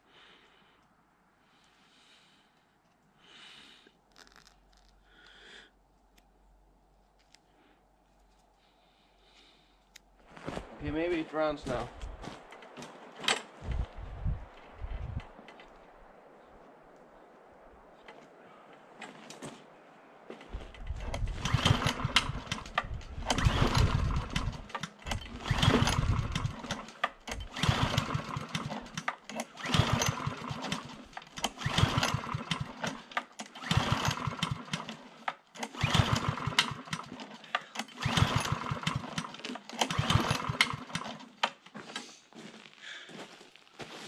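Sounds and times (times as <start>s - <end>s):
mower engine cranking on recoil cord: 4.1s - 4.9s, 12.5s - 13.8s, 20.4s - 42.1s.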